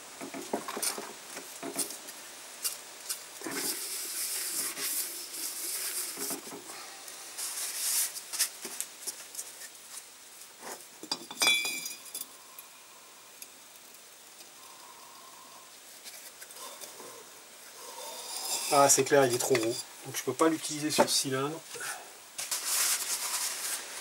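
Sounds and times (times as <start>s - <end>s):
hiss: 0.2s - 10.8s, 11.8s - 19.9s
metal clinks and knocks: 11.0s - 12.3s
metallic ring: 11.1s - 12.2s.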